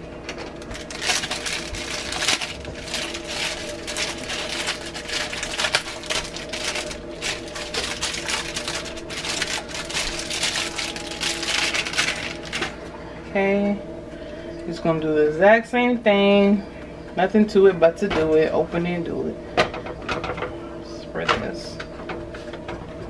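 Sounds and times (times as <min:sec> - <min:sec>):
plastic wrapper crinkling: 0:00.4 - 0:12.8.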